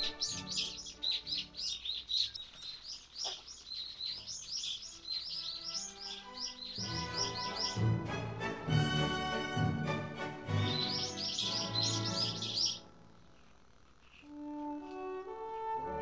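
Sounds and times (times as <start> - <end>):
background music: 0.0 - 2.2, 4.5 - 13.4, 14.3 - 16.0
high bird chirps: 0.0 - 8.0, 10.5 - 12.9.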